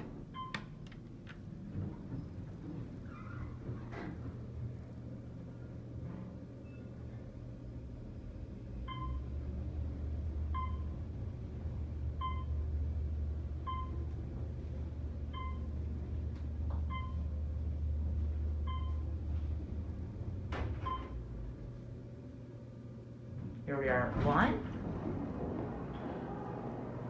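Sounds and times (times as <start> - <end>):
elevator motor hum: 0.0 - 27.0
short elevator beeps: 8.9 - 9.3, 10.5 - 10.9, 12.2 - 12.6, 13.6 - 14.0, 15.3 - 15.7, 16.9 - 17.3, 18.7 - 19.1, 20.8 - 21.2.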